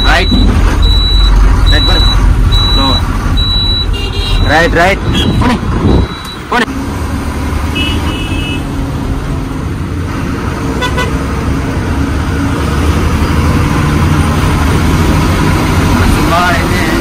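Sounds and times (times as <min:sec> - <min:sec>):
truck diesel engine from cab: 0:00.0 - 0:17.0
truck horn toot: 0:03.6 - 0:05.6, 0:07.7 - 0:08.7, 0:10.8 - 0:11.2.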